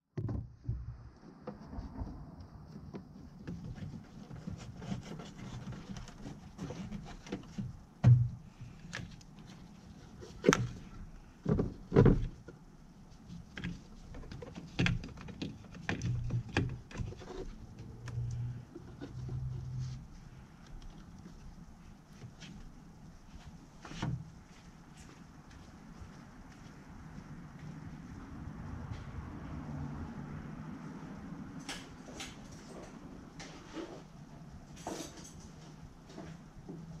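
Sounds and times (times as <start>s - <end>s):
cable handling knocks and rustling: 1.6s - 20.0s, 20.7s - 25.2s.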